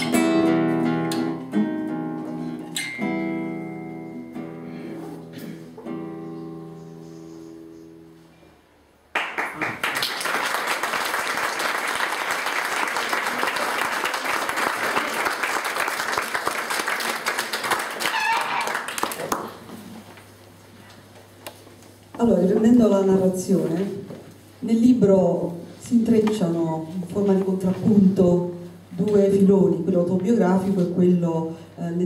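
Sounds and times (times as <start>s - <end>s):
classical guitar notes ringing: 0.0s - 7.0s
audience applause: 9.1s - 19.7s.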